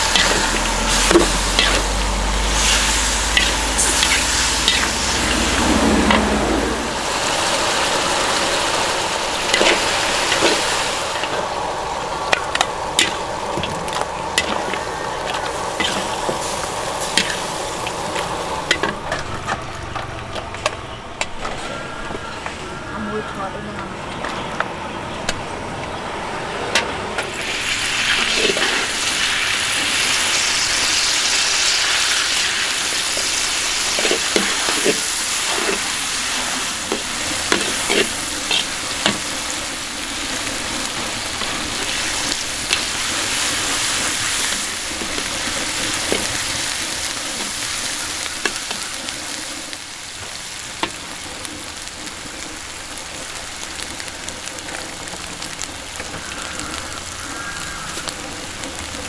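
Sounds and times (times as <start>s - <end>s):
food frying sizzle: 0.0s - 20.8s, 27.2s - 59.0s.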